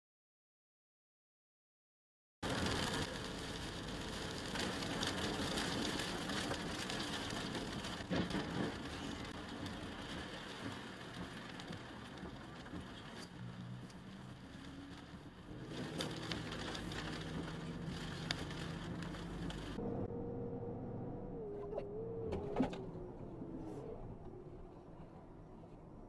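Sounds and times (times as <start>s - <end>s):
rain on windshield: 2.4s - 26.0s
tyre hiss on wet road: 2.5s - 19.8s.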